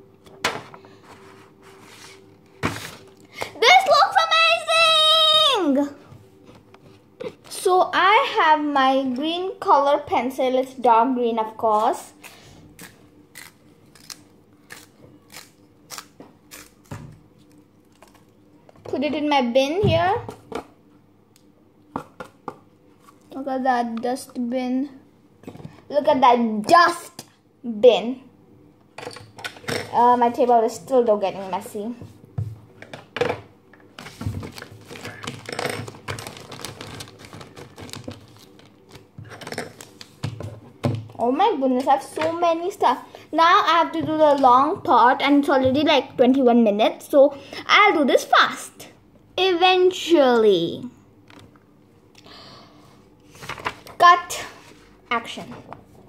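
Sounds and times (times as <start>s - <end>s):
paper rustling and crinkling: 34.0s - 40.2s.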